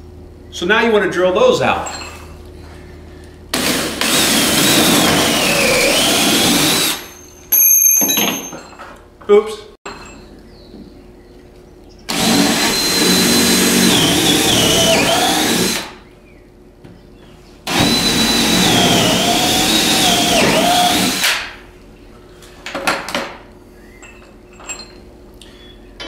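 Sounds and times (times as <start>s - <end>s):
cordless drill boring into wall: 3.5s - 7.3s, 12.1s - 16.0s, 17.7s - 21.4s.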